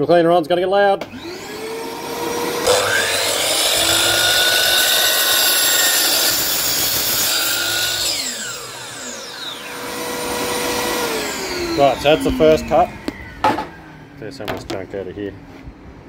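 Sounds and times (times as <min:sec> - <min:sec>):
vacuum cleaner running: 0:01.0 - 0:14.2
saw motor winding down whine: 0:01.1 - 0:14.2
drop saw cutting timber: 0:02.6 - 0:13.8.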